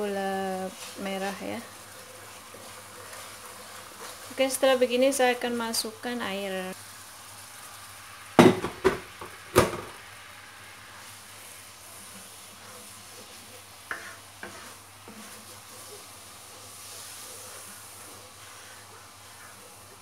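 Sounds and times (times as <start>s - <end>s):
wooden spatula stirring: 0.0s - 5.8s, 10.9s - 20.0s
sauce sizzling in a wok: 0.0s - 20.0s.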